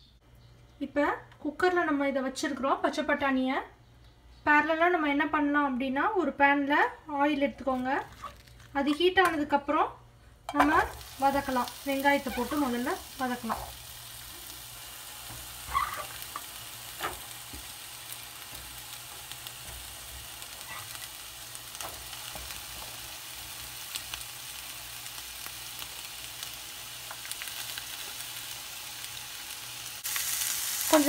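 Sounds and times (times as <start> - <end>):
onion sizzling in hot oil: 10.5 - 31.0.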